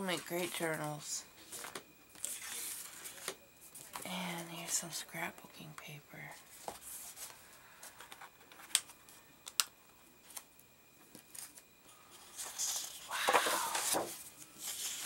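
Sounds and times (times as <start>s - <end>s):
paper rustling and sliding: 1.4s - 4.0s, 11.3s - 15.0s.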